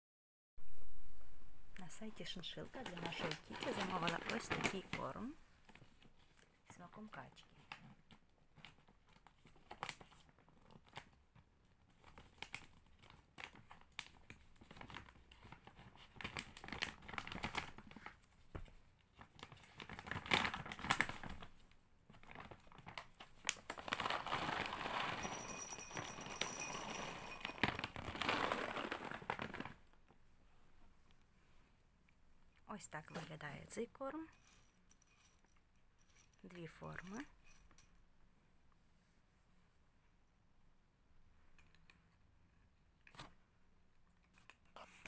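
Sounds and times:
plastic bag crinkling: 0:02.4 - 0:05.3, 0:19.2 - 0:30.0
kibble pouring into ceramic bowl: 0:24.0 - 0:29.0.

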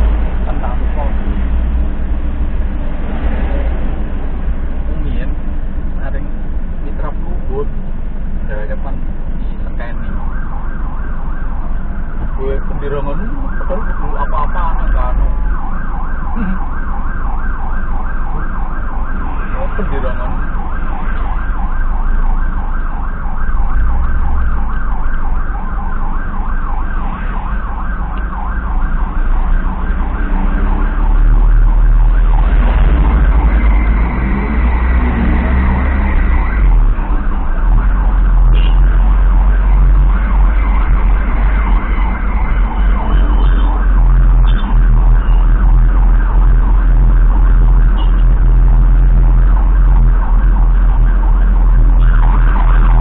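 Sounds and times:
engine and road rumble: 0:00.0 - 0:53.0
electronic siren cycling: 0:09.7 - 0:53.0.

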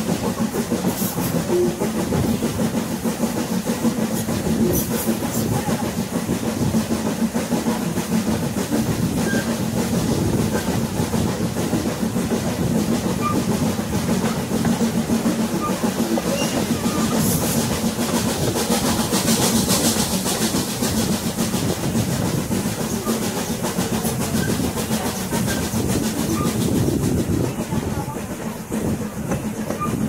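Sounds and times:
railroad coach rumbling and rattling: 0:00.0 - 0:30.0.

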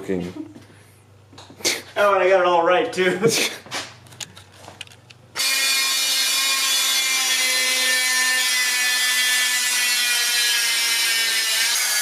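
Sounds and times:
rotary tool whine cutting metal: 0:05.4 - 0:12.0.

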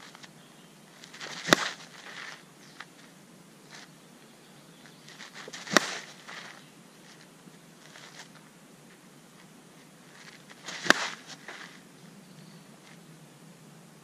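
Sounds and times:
feet scuffing on dirt: 0:01.0 - 0:03.9, 0:04.8 - 0:11.9
bat hitting softball: 0:01.3 - 0:01.8, 0:05.5 - 0:06.1, 0:10.7 - 0:11.2.

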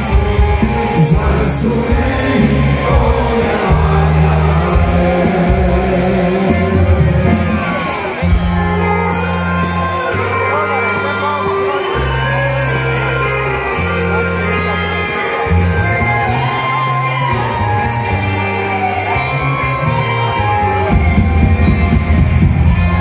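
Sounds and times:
crowd shouting and whooping: 0:00.0 - 0:23.0
drums: 0:00.0 - 0:23.0
electric bass: 0:00.0 - 0:23.0
man singing into a microphone: 0:00.7 - 0:07.8.

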